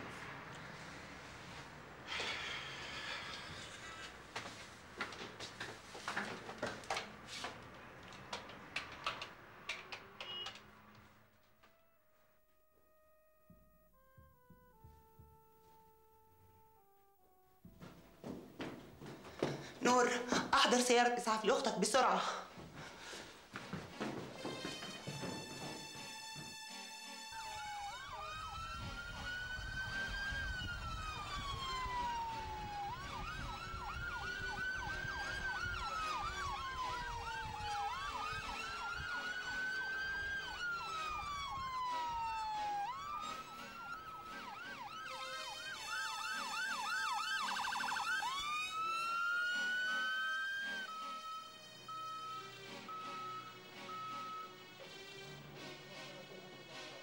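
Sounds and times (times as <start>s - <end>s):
ambulance siren wailing: 24.4s - 55.0s.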